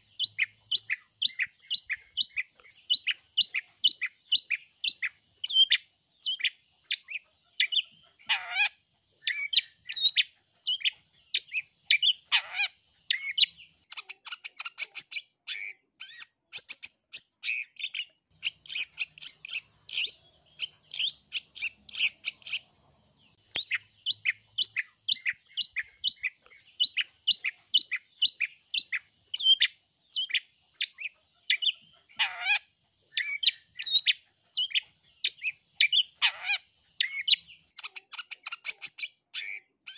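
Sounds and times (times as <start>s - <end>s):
bird chattering call: 0.0s - 16.8s, 17.4s - 22.7s, 23.5s - 39.9s
bird rasping screeches: 8.3s - 8.7s, 12.3s - 12.8s, 32.2s - 32.6s, 36.2s - 36.6s.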